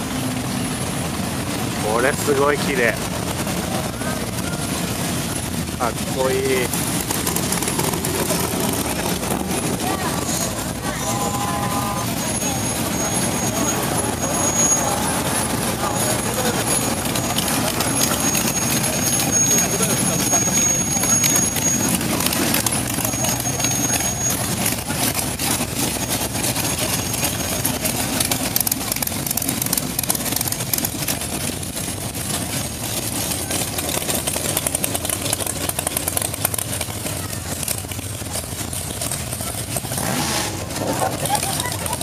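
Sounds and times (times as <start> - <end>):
car engines running at low speed: 0.0 - 42.0.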